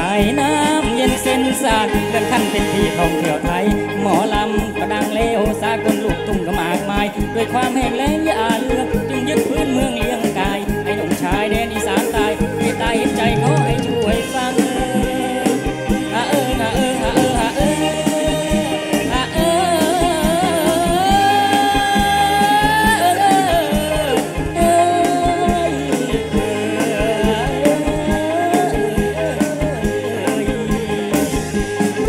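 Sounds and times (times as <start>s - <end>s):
live band with steady drum beat: 0.0s - 32.0s.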